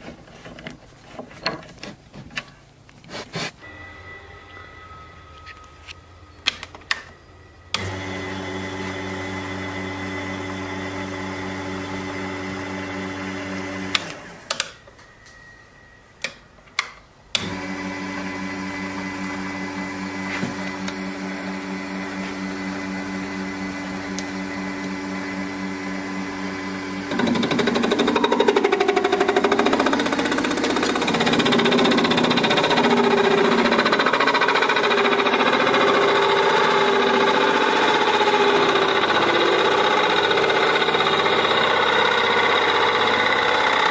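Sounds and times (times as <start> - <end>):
lathe motor humming: 7.7 - 14.4, 17.4 - 43.9.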